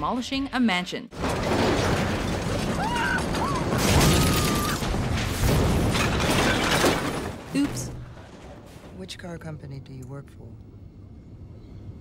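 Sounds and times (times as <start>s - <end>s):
crashing and smashing wreckage: 1.1s - 9.2s
fiery explosion: 1.2s - 8.9s.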